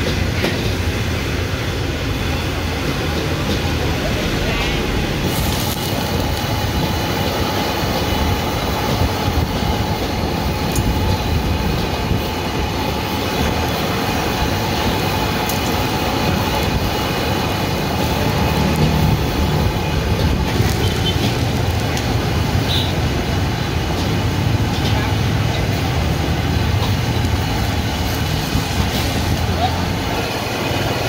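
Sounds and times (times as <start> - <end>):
gas burner roaring: 0.0 - 31.0
sauce boiling hard: 5.2 - 7.0.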